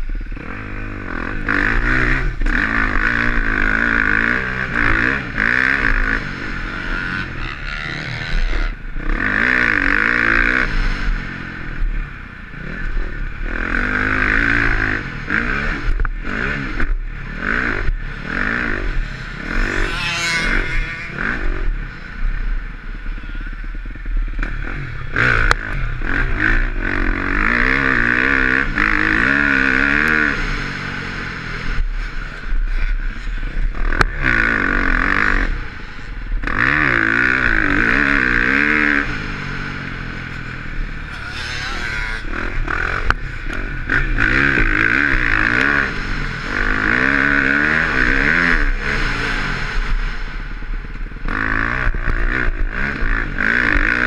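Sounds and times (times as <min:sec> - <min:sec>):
motorcycle engine revving through gears: 0:00.0 - 0:54.0.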